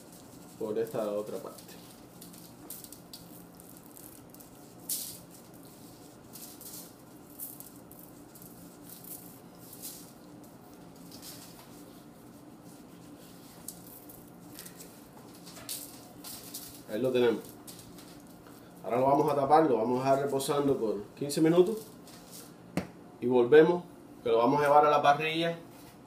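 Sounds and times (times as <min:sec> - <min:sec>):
shaker jar rattling: 0:00.0 - 0:18.4
hand rubbing meat on foil: 0:00.0 - 0:20.6
faint steady hum: 0:00.0 - 0:26.0.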